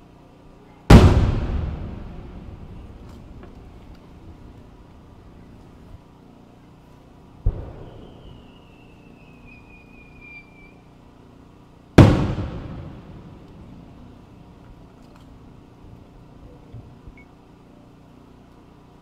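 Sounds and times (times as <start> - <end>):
firework bang with echo: 0.9 - 3.6, 7.4 - 8.4, 12.0 - 13.4
firework launch thump: 0.9 - 4.4, 7.4 - 8.4, 12.0 - 13.4
firework whistle: 7.5 - 10.9.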